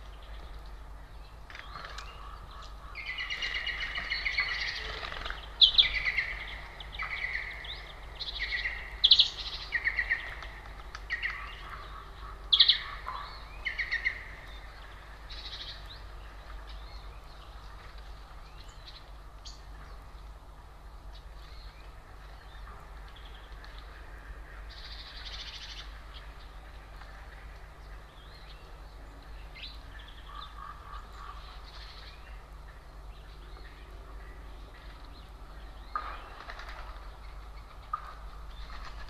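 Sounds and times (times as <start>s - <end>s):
songbird trilling and twittering: 1.2s - 17.7s
faint bird calls: 1.5s - 17.1s, 21.4s - 39.0s.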